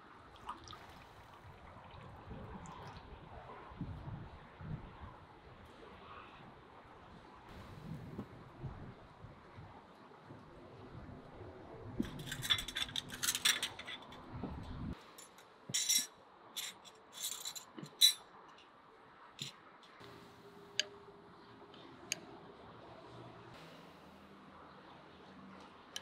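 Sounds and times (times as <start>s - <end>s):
cups and spoons clinking: 15.2s - 18.2s.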